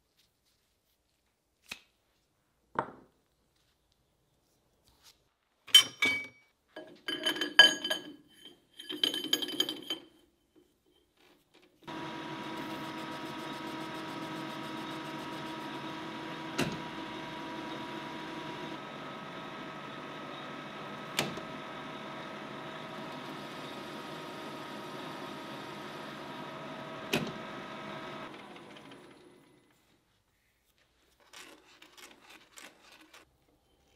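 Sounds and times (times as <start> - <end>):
metal lathe running: 11.9 - 29.4.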